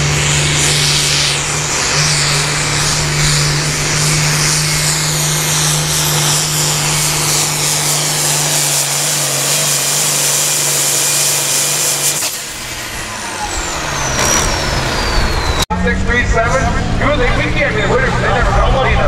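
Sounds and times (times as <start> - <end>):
tractor diesel engine droning: 0.0 - 19.0
high whistle falling in pitch: 13.4 - 15.6.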